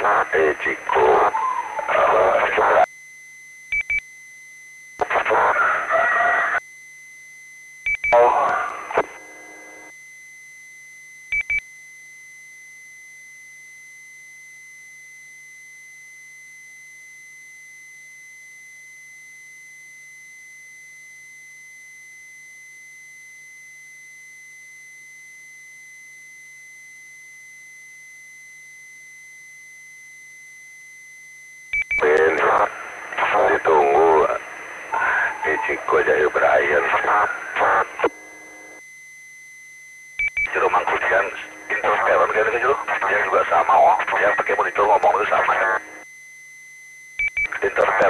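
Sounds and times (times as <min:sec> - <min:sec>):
radio speech: 0:00.0 - 0:02.9, 0:05.0 - 0:06.6, 0:08.1 - 0:09.2, 0:32.0 - 0:38.2, 0:40.5 - 0:46.0, 0:47.5 - 0:48.0
high-pitched tone: 0:00.9 - 0:02.4, 0:34.9 - 0:36.1
faint low hum: 0:32.0 - 0:38.8
short beep-like burst: 0:34.9 - 0:38.0.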